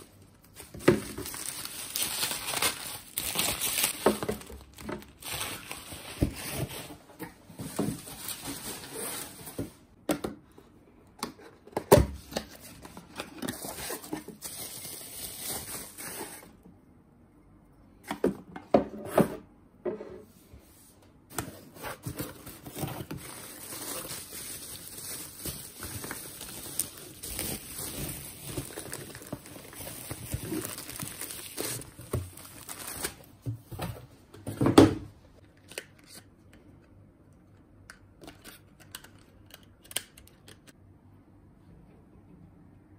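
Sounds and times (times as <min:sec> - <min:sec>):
packaging crinkling and tearing: 0:00.5 - 0:06.8, 0:22.1 - 0:33.3.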